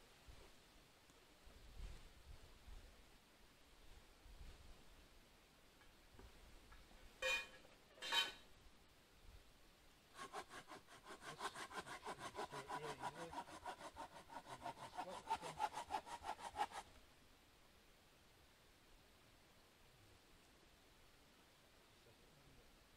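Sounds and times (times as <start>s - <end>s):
hand saw cutting log: 10.1s - 17.0s.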